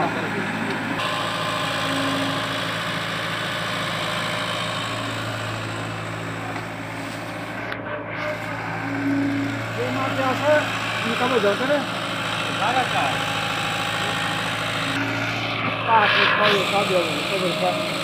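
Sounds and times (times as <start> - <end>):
excavator diesel engine running: 0.0 - 18.0.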